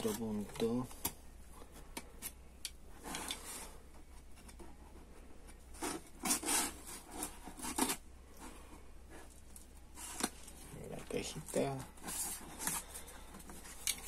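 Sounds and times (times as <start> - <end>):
box rubbing: 3.0 - 10.6, 11.3 - 14.0
knife cutting cardboard: 5.6 - 8.0.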